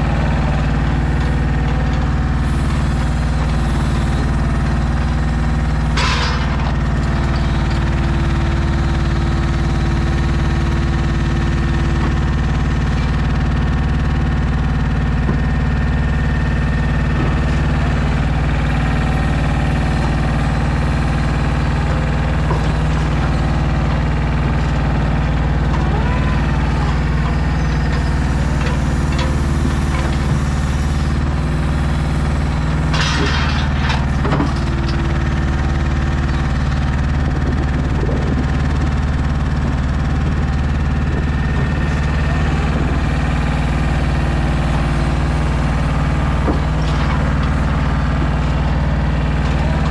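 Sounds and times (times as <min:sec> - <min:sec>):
truck diesel engine running: 0:00.0 - 0:49.9.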